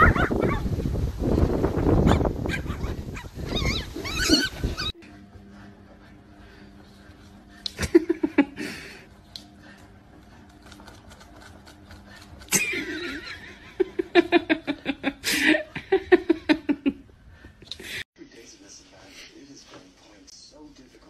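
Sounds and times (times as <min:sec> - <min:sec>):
person laughing: 0:07.7 - 0:09.0, 0:12.4 - 0:17.1.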